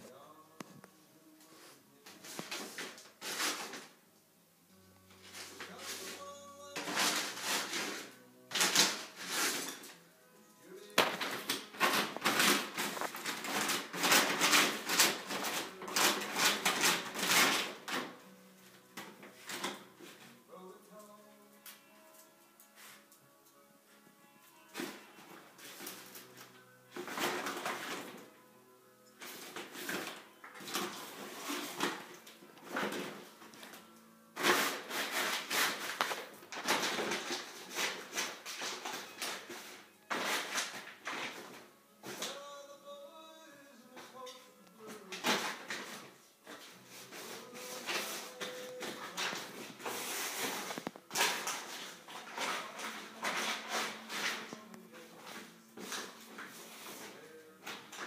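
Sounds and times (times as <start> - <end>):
paper bag rustling: 1.5 - 4.0, 5.2 - 10.0, 10.8 - 18.2, 24.6 - 28.3, 29.2 - 33.5, 34.4 - 42.5, 44.8 - 58.0.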